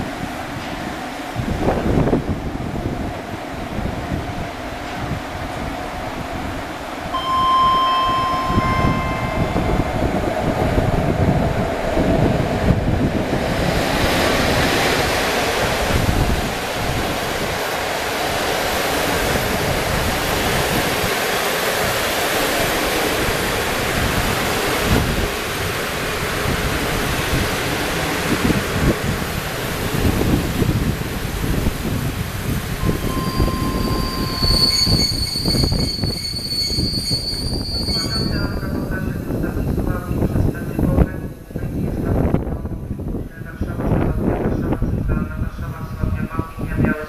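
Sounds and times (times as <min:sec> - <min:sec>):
train wheels rushing on rails: 0:00.0 - 0:41.0
two-tone train horn: 0:07.1 - 0:10.2, 0:32.8 - 0:35.2.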